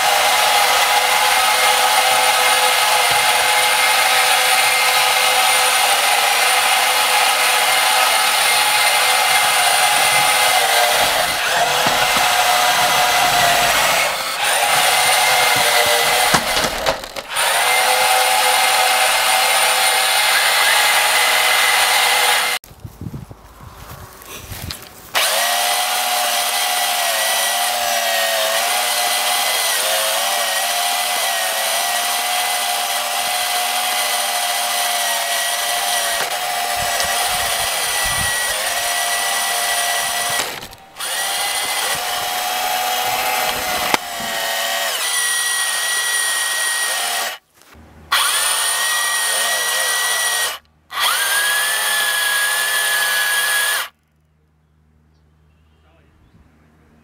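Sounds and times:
electric motors whining: 0.0s - 22.6s, 32.0s - 47.4s.

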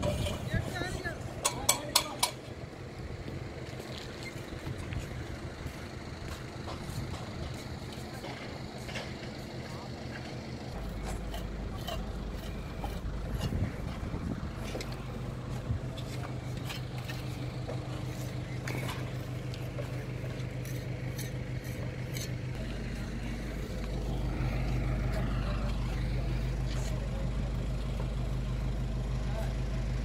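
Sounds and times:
engine humming: 0.0s - 30.0s
hand tools clicking and knocking: 1.4s - 2.5s, 10.8s - 14.0s, 16.0s - 22.5s.

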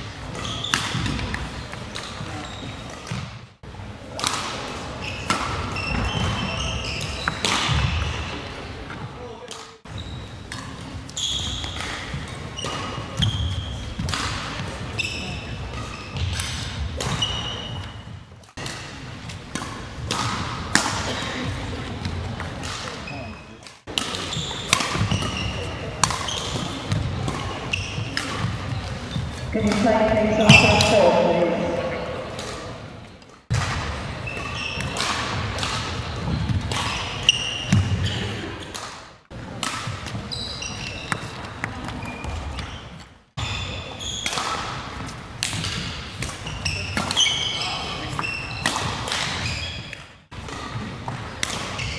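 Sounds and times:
shoes squeaking: 5.0s - 8.4s, 9.9s - 10.4s, 11.1s - 11.9s, 12.5s - 13.9s, 17.0s - 18.2s, 24.2s - 32.8s, 34.2s - 35.0s, 40.1s - 44.3s, 46.4s - 50.2s
racket hitting shuttlecock: 5.2s - 8.1s, 14.0s - 14.8s, 18.5s - 21.5s, 23.9s - 29.8s, 32.2s - 32.9s, 33.5s - 38.0s, 38.6s - 41.7s, 44.2s - 47.3s, 48.1s - 51.9s
shoes squeaking on wooden floor: 24.3s - 26.8s.

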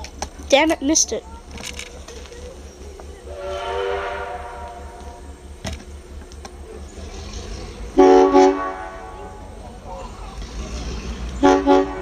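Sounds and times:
locomotive whistle blasts: 3.3s - 5.3s, 8.0s - 9.6s, 11.4s - 12.0s.

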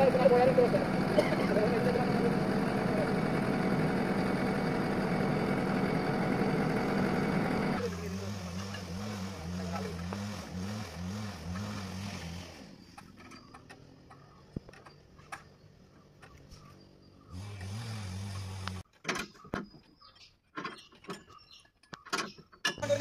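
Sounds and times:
diesel engine idling: 0.0s - 8.4s
metallic clicks and knocks: 20.5s - 22.9s.

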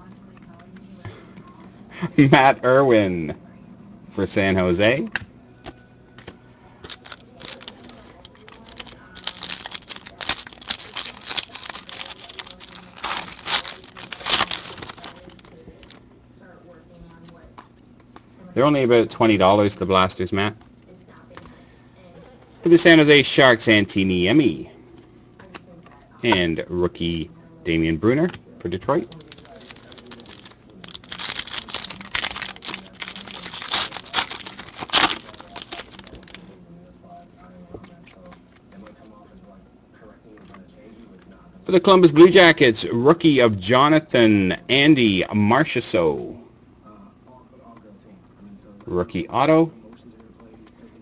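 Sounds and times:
foil wrapper crinkling: 6.9s - 16.0s, 29.0s - 36.4s.

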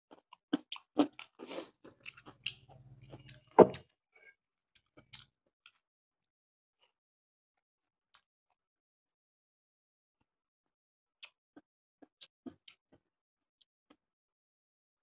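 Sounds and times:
wet chewing and mouth smacks: 0.1s - 3.5s.

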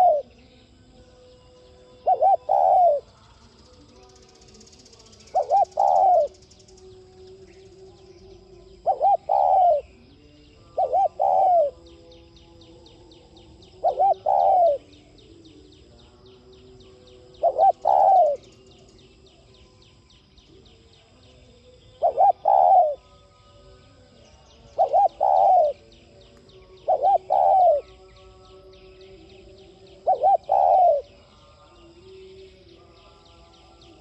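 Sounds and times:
dove cooing: 0.0s - 0.4s, 2.0s - 3.1s, 5.2s - 6.4s, 8.7s - 10.0s, 10.7s - 11.9s, 13.7s - 14.9s, 17.3s - 18.5s, 22.0s - 23.0s, 24.7s - 25.9s, 26.7s - 28.0s, 29.8s - 31.2s.

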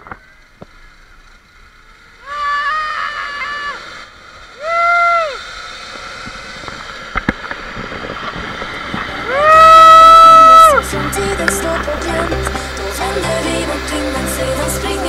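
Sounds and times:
zipline cable rushing: 0.0s - 15.0s
person whooping: 2.2s - 3.9s, 4.6s - 5.5s, 9.2s - 10.8s.

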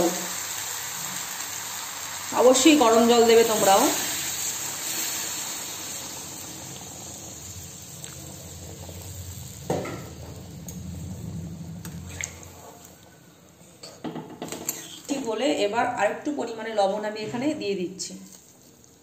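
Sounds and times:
water pouring and splashing: 0.0s - 13.0s.

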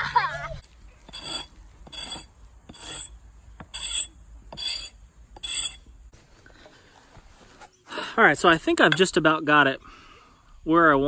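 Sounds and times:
axe blade scraping wood: 1.0s - 5.9s.

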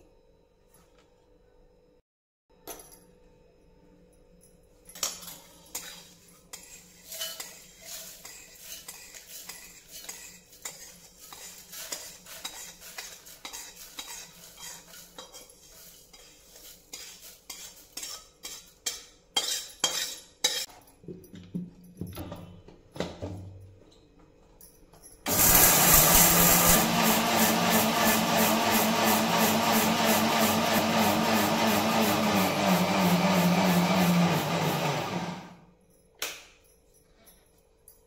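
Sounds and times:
metal spoon scraping steel bowl: 5.6s - 20.7s.

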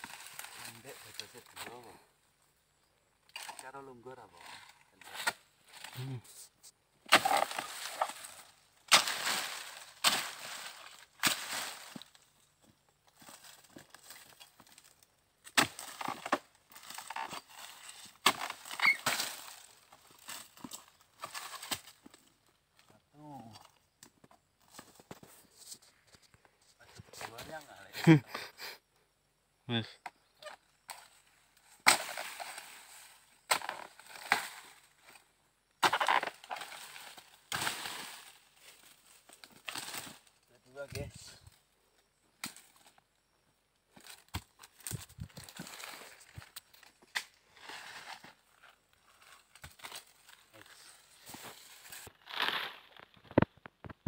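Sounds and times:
stalk and fronds crackling: 0.0s - 2.0s, 3.2s - 6.2s, 7.0s - 27.9s, 30.4s - 41.6s, 43.9s - 54.0s.

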